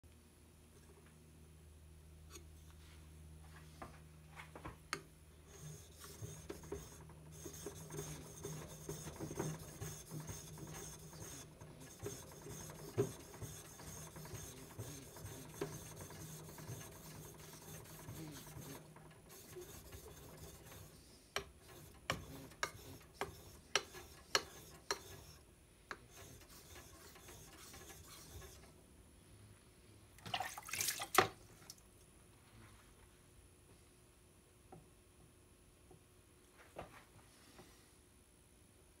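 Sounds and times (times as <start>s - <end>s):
knife scraping on whetstone: 5.5s - 20.9s, 21.6s - 25.4s, 26.1s - 28.6s.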